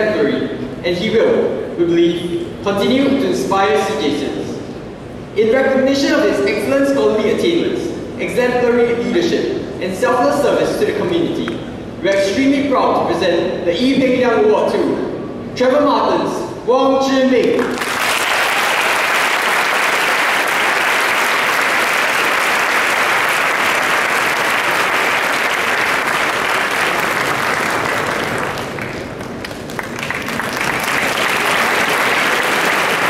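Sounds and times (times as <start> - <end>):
audience applauding: 17.6 - 33.0.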